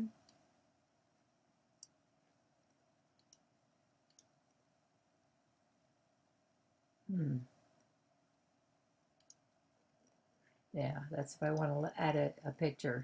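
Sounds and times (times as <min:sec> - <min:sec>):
computer mouse clicks: 0:03.2 - 0:04.4, 0:09.2 - 0:09.4.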